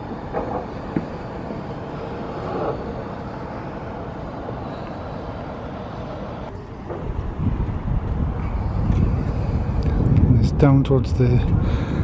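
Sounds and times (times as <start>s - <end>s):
distant city traffic hum: 0.0s - 12.0s
wind on microphone: 6.4s - 12.0s.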